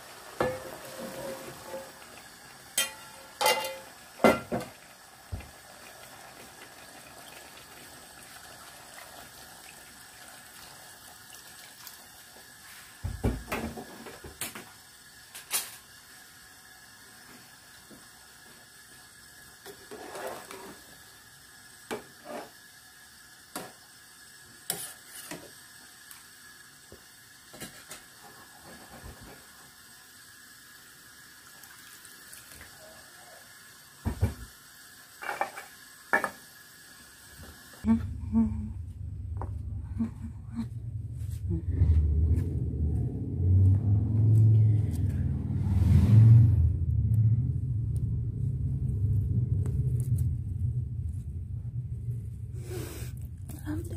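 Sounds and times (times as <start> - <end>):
water pouring into a pot: 0.0 - 37.9
spoon clinking against pot: 2.8 - 3.9.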